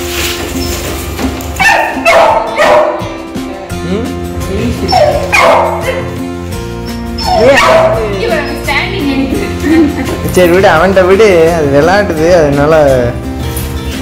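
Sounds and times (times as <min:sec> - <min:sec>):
background music: 0:00.0 - 0:14.0
puppy yipping and barking: 0:01.6 - 0:03.0, 0:04.8 - 0:06.2, 0:06.9 - 0:08.6.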